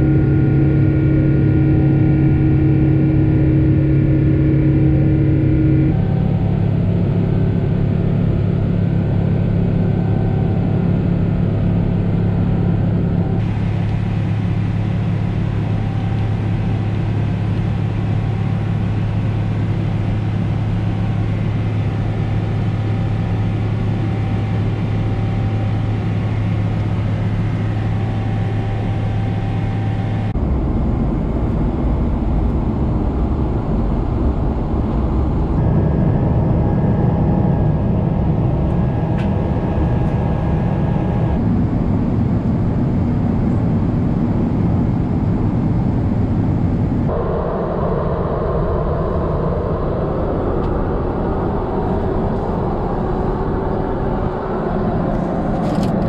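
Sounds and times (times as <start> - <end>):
jet engine drone: 0.0 - 56.0
low hum: 0.0 - 56.0
rushing air: 47.0 - 55.7.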